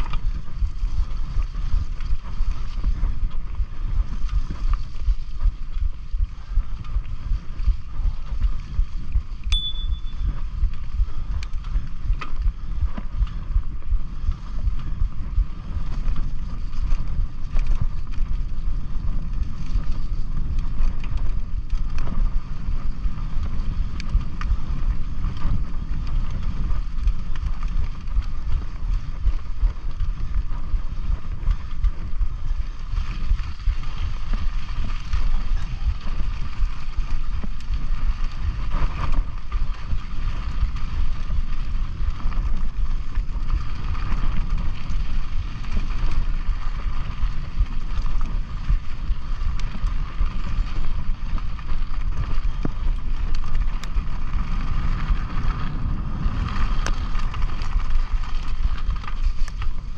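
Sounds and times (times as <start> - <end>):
bike clicks and rattles: 0.0 - 59.9
bike tyre rumble: 0.0 - 59.9
wind buffeting microphone: 0.0 - 59.9
brief high chirp: 9.5 - 10.3.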